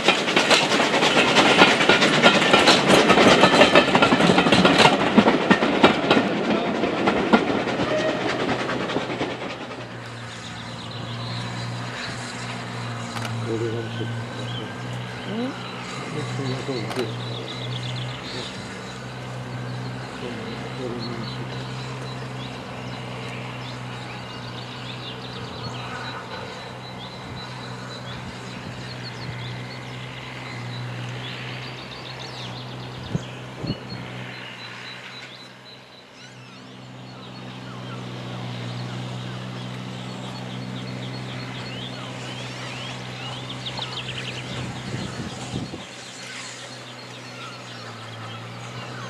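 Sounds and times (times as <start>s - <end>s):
birds chirping: 0.0s - 49.0s
steam locomotive exhaust: 0.0s - 49.0s
sharp clicks: 13.1s - 13.4s.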